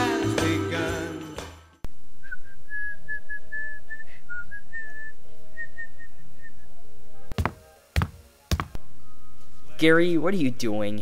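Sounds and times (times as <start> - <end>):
person whistling a tune: 2.2 - 6.5.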